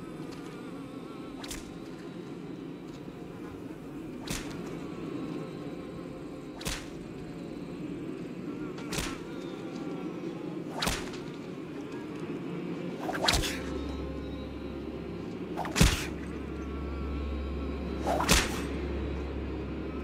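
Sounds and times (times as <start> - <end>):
whip cracking: 4.3 - 4.6, 6.6 - 7.0, 8.9 - 9.3, 10.7 - 11.4, 13.0 - 13.7, 15.6 - 16.3, 18.0 - 18.8.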